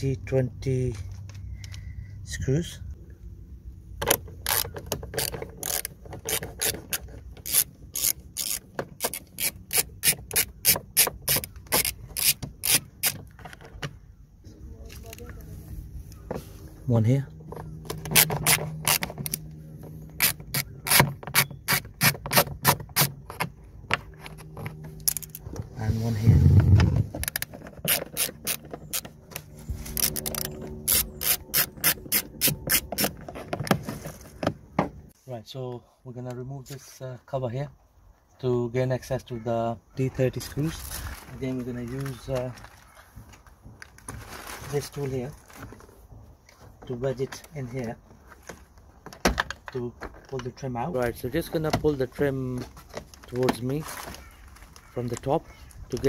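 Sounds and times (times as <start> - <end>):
bit driver grating clicks: 4.0 - 13.6, 17.8 - 19.5, 27.2 - 33.3.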